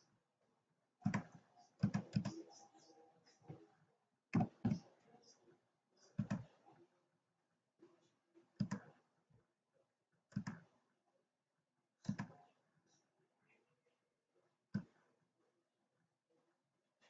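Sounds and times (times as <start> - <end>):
computer mouse clicking: 1.0 - 3.6, 4.4 - 4.8, 6.0 - 6.6, 8.6 - 9.0, 10.3 - 10.7, 12.0 - 12.4.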